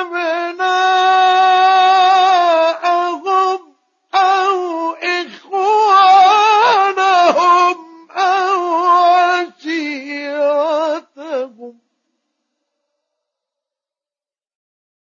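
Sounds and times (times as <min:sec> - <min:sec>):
man chanting melodically: 0:00.0 - 0:11.8.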